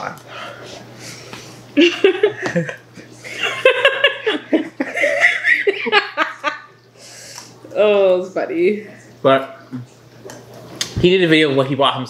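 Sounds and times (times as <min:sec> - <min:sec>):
person laughing high-pitched: 0:01.8 - 0:02.8.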